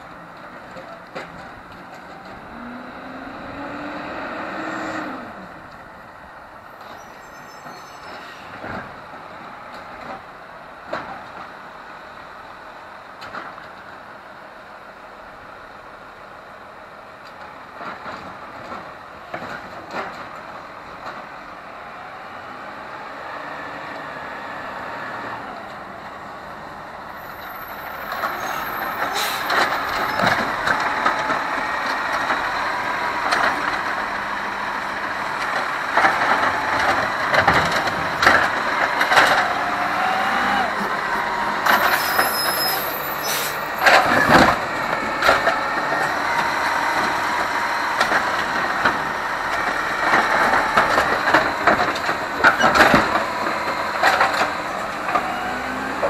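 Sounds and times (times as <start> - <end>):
diesel truck engine revving: 0.0 - 6.6, 21.6 - 56.0
air brake hisses: 29.0 - 29.6, 42.1 - 43.7.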